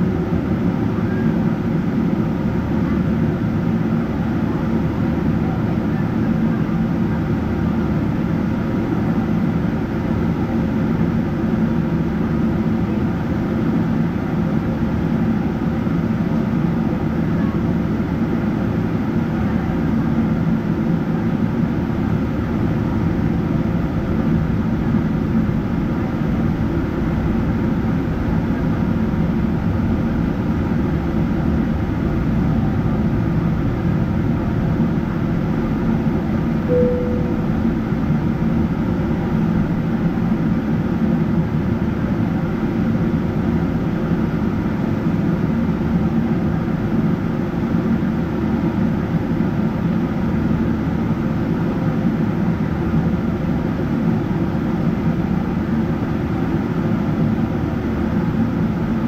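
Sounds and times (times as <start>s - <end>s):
airplane cabin engine drone: 0.0s - 59.0s.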